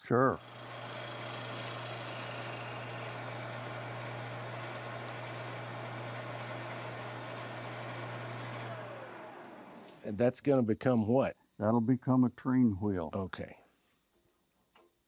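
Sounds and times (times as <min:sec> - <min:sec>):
chisel scraping spinning wood: 0:00.4 - 0:08.8
wood lathe motor hum: 0:00.4 - 0:10.0.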